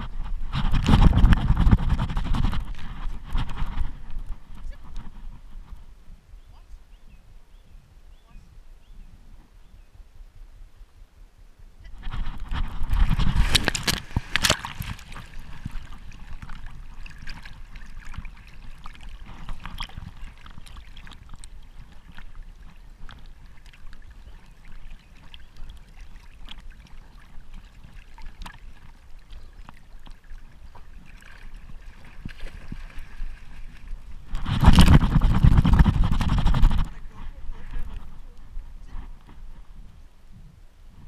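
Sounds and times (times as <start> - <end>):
water sloshing and lapping: 12.0 - 39.4
dog splashing into water: 12.9 - 21.2.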